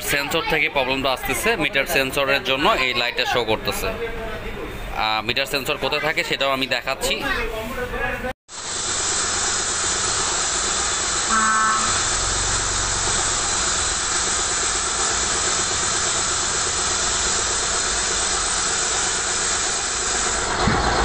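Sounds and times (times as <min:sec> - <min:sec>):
road traffic: 0:09.2 - 0:19.3
vehicle horn toot: 0:11.3 - 0:12.2.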